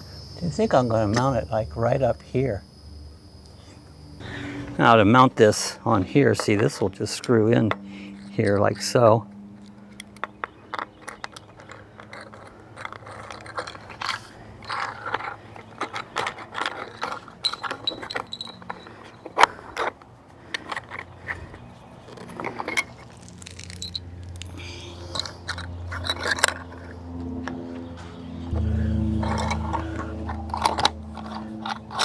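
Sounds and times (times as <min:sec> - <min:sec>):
plastic parts clicking and scraping: 0:06.3 - 0:27.6, 0:29.2 - 0:32.0.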